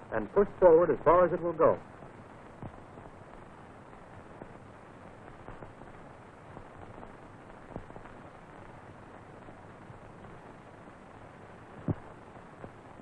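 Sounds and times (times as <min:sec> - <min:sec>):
film soundtrack hiss: 0:00.0 - 0:13.0
faint clicks and pops: 0:02.0 - 0:08.8, 0:11.7 - 0:12.8.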